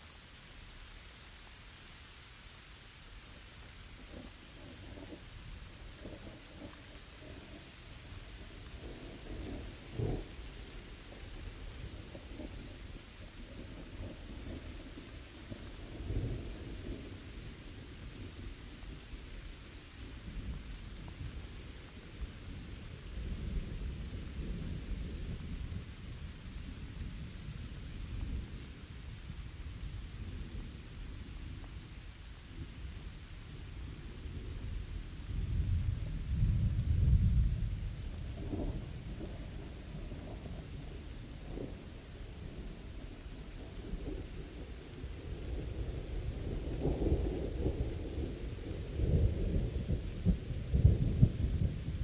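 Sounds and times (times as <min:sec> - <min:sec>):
steady rain: 0:00.0 - 0:52.0
rolling thunder: 0:33.9 - 0:52.0.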